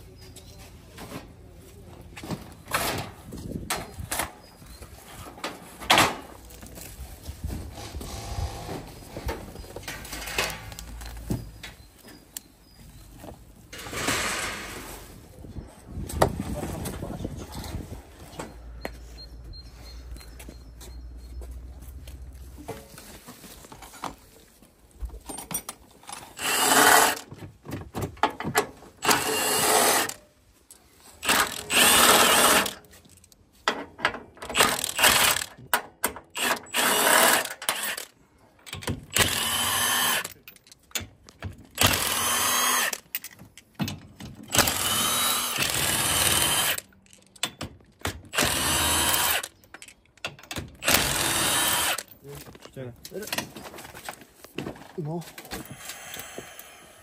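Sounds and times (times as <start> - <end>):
impact wrench whining in bursts: 26.4 - 27.3, 29.0 - 30.2, 31.2 - 32.8, 34.5 - 35.6, 36.3 - 38.2, 39.1 - 40.4, 41.8 - 43.1, 44.5 - 46.9, 48.3 - 49.6, 50.8 - 52.1.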